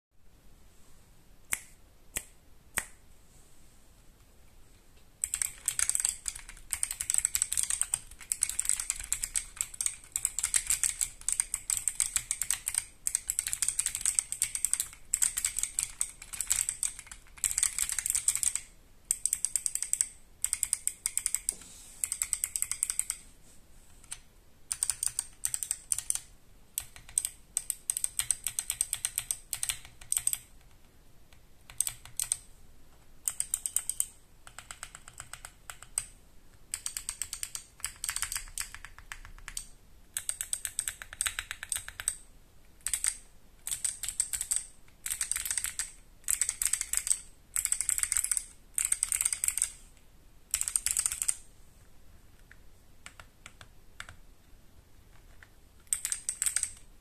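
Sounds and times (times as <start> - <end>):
clicky keyboard typing: 5.2 - 23.2, 24.0 - 42.2, 42.8 - 49.8, 50.5 - 51.4, 52.4 - 54.2, 55.1 - 56.9.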